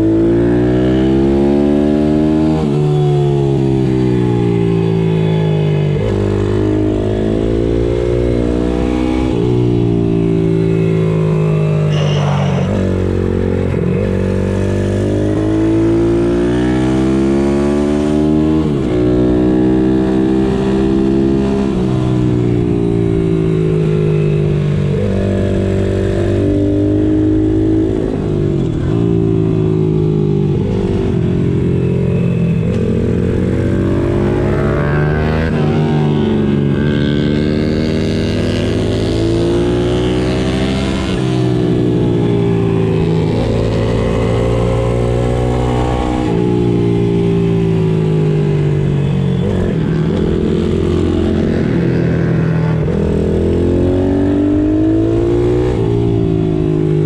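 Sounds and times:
motorbike engine revving hard: 32.6 - 57.0.

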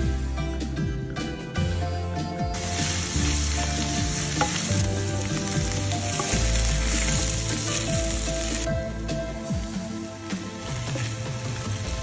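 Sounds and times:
onions sizzling in oil: 2.6 - 8.7, 10.2 - 12.0.

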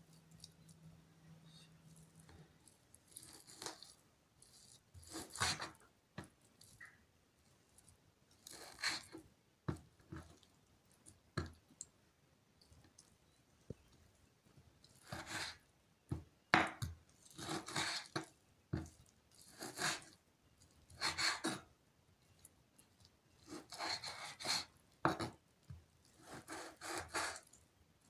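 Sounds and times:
knife sawing through meat: 4.5 - 5.7, 17.4 - 18.2, 19.4 - 20.1, 21.0 - 21.6, 23.5 - 24.7, 26.2 - 27.5.

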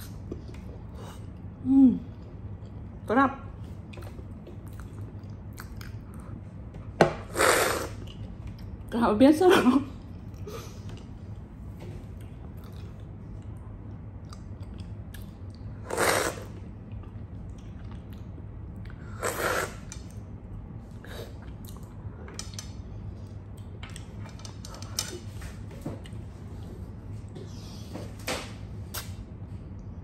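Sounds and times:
soft chewing: 3.7 - 6.7, 10.0 - 15.8, 16.5 - 19.2, 19.9 - 25.3
lip smacks: 28.9 - 29.2.

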